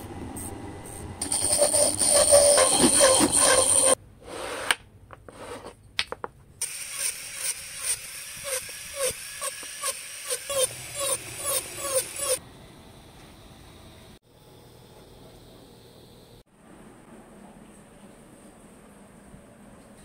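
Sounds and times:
chisel cutting spinning wood: 0:01.2 - 0:04.0, 0:06.6 - 0:12.4
rotary tool cutting wood: 0:01.2 - 0:04.0, 0:06.6 - 0:12.4.

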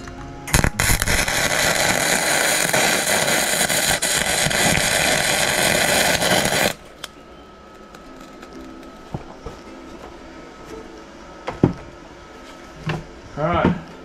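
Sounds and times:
welding arc crackling: 0:00.5 - 0:07.1.

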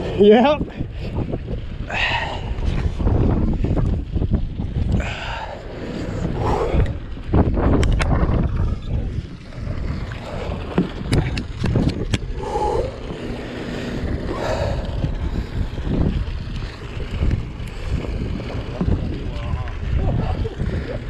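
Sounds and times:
wind rumbling on microphone: 0:00.0 - 0:21.0
sharp clicks and knocks: 0:07.7 - 0:08.5, 0:10.7 - 0:12.3.

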